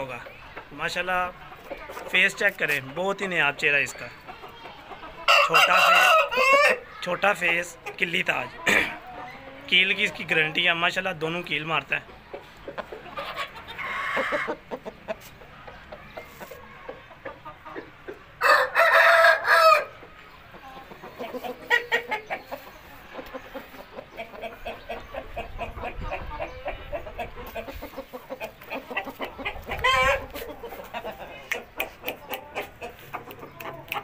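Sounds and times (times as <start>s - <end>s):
chickens clucking: 0.0s - 34.0s
rooster crowing: 5.3s - 6.8s, 18.4s - 19.9s.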